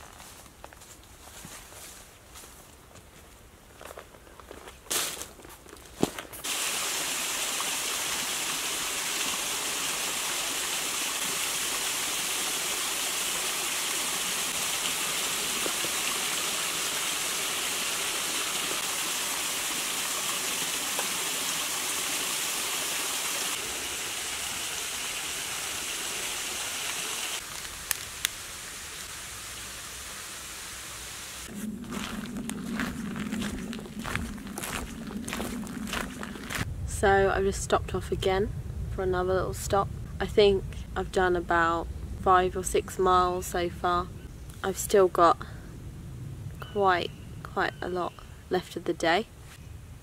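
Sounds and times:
footsteps on leafy path: 0:00.0 - 0:06.5, 0:31.5 - 0:36.7
small waterfall rushing: 0:06.4 - 0:27.4.

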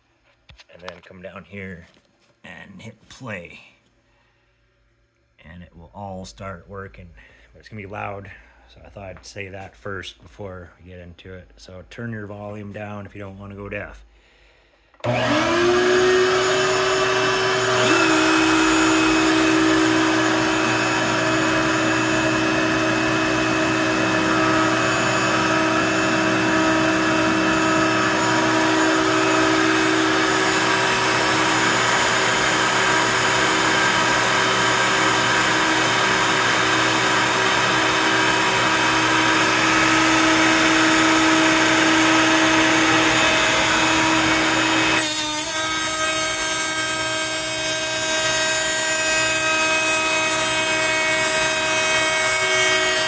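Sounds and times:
high-pitched router motor: 0:15.0 - 0:53.0
shop vacuum motor running: 0:15.0 - 0:53.0.

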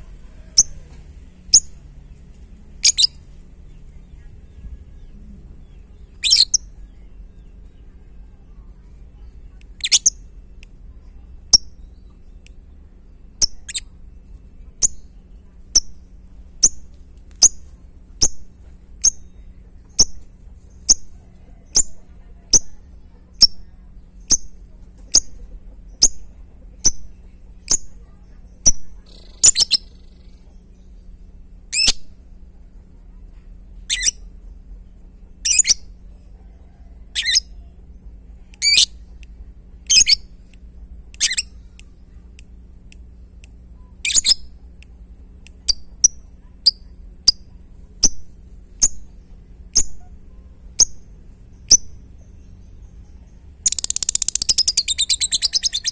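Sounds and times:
harsh bird chirps: 0:00.0 - 0:00.8, 0:02.8 - 0:08.0, 0:09.2 - 0:10.4, 0:11.5 - 0:14.0, 0:14.8 - 0:32.1, 0:33.8 - 0:34.3, 0:35.4 - 0:36.0, 0:37.1 - 0:37.6, 0:38.6 - 0:39.1, 0:39.9 - 0:40.4, 0:41.1 - 0:41.9, 0:43.8 - 0:44.7, 0:45.6 - 0:55.9
bird ticking calls: 0:02.8 - 0:03.9, 0:05.6 - 0:07.9, 0:09.5 - 0:10.8, 0:11.5 - 0:12.6, 0:13.4 - 0:13.9, 0:14.8 - 0:31.0, 0:33.9 - 0:34.2, 0:37.1 - 0:37.6, 0:38.5 - 0:50.2, 0:50.8 - 0:55.9.

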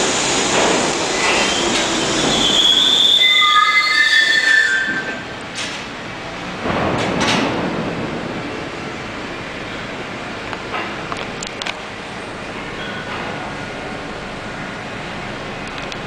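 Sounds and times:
subway wheels squealing: 0:00.0 - 0:05.9, 0:12.5 - 0:13.8
subway train rumbling: 0:00.0 - 0:16.0.

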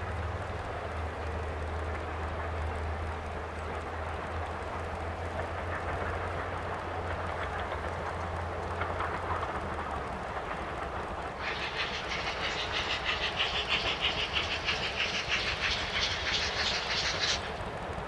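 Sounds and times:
steam exhaust beats: 0:00.0 - 0:18.0
steam locomotive rumble: 0:00.0 - 0:18.0.

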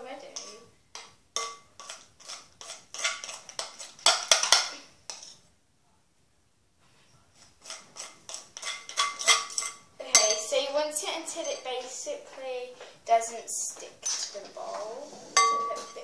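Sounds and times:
spoon clinking against glass bowl: 0:08.6 - 0:10.6, 0:15.4 - 0:16.0.

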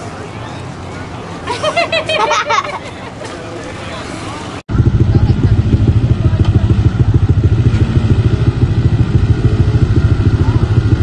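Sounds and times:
utility vehicle engine under load: 0:04.7 - 0:11.0.

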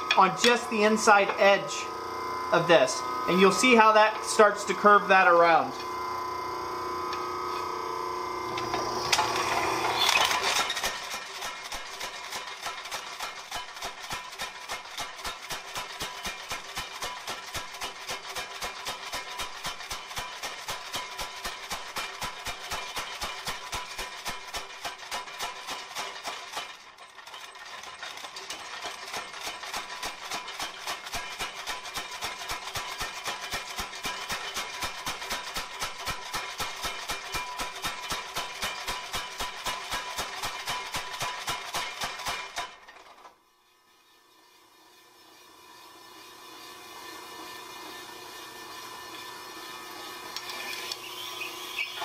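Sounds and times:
power hammer striking metal: 0:00.0 - 0:01.8, 0:08.5 - 0:42.9
steady hum: 0:00.0 - 0:10.0
motor hum: 0:00.0 - 0:12.4, 0:44.2 - 0:52.0.

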